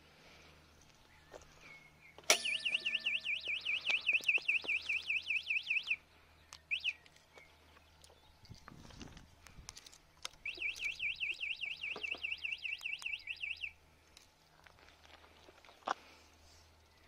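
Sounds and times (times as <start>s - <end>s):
warbling alarm siren: 2.4s - 6.0s.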